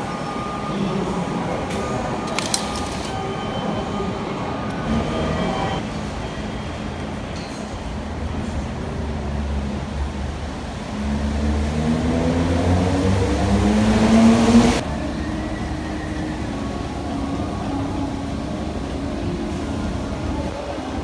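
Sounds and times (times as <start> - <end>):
traffic hum: 0.0 - 6.2, 6.9 - 21.0
vehicle accelerating on wet street: 9.0 - 16.6.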